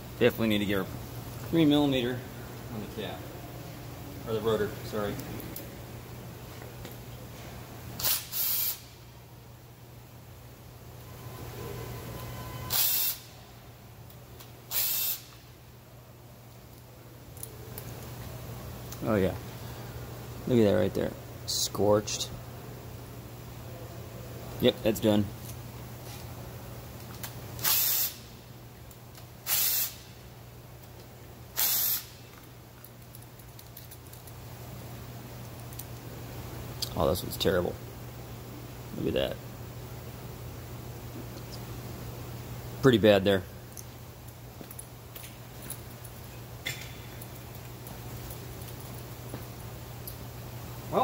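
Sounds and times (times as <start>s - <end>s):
short hissing spray bursts: 8.0s - 9.0s, 12.7s - 13.4s, 14.7s - 15.4s, 27.6s - 28.3s, 29.4s - 30.2s, 31.5s - 32.2s.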